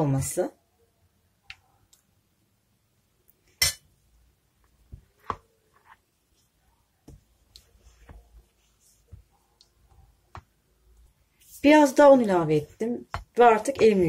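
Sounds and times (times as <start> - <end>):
spatula stirring dough: 3.3 - 14.0.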